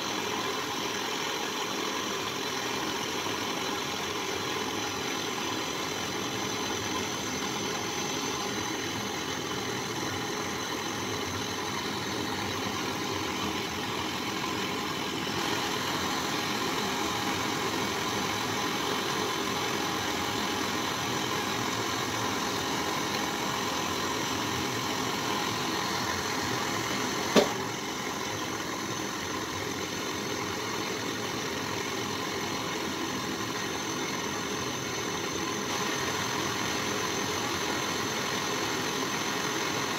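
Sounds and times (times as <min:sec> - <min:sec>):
gas torch hissing: 0:00.0 - 0:39.9
sharp click: 0:27.3 - 0:27.6.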